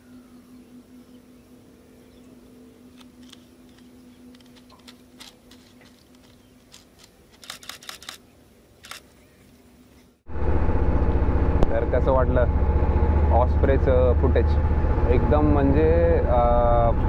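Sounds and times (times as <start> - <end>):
low steady hum: 0.0 - 8.6, 9.2 - 17.0
camera handling clicks: 2.9 - 8.2.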